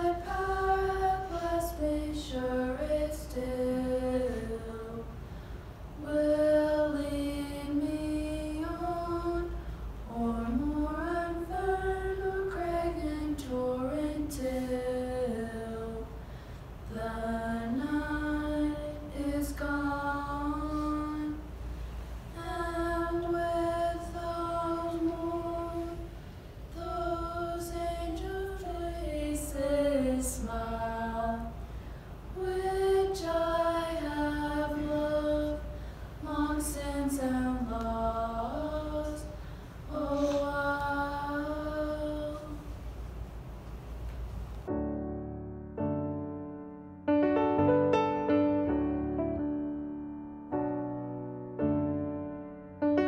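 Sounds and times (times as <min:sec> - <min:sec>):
girl singing a cappella: 0:00.0 - 0:05.2, 0:06.0 - 0:16.2, 0:16.8 - 0:21.6, 0:22.3 - 0:42.8
steady low hum: 0:00.0 - 0:45.0.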